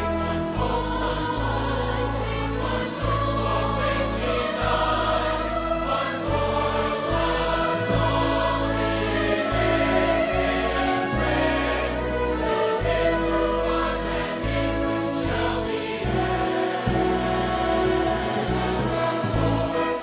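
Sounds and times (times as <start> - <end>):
choir singing with orchestra: 0.0 - 20.0.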